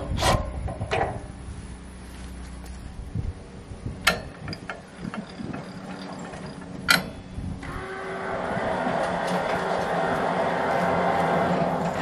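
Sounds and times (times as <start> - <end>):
sawmill mechanical running: 4.0 - 12.0.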